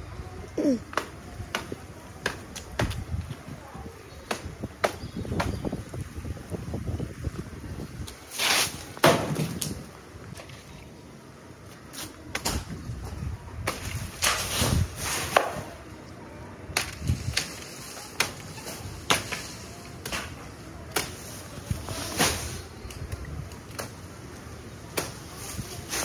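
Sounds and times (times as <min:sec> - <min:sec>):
machete chopping palm stalks: 0:00.9 - 0:03.0, 0:04.2 - 0:05.7, 0:08.3 - 0:09.8, 0:13.6 - 0:15.8, 0:16.8 - 0:21.3, 0:24.9 - 0:25.3.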